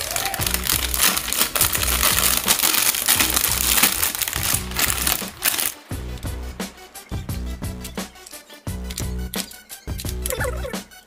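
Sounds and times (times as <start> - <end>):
plastic bag crinkling: 0.0 - 5.8
background music with beat: 0.0 - 11.0.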